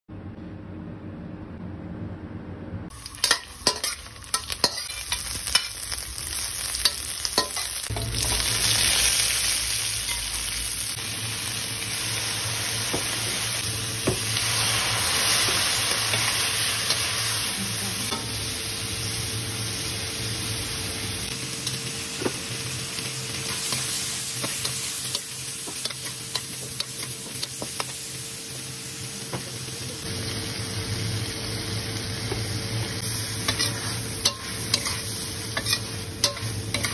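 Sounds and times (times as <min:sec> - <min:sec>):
shrimp sizzling in wok: 0:02.9 - 0:36.9
metal spatula scraping wok: 0:03.1 - 0:09.1, 0:33.0 - 0:36.9.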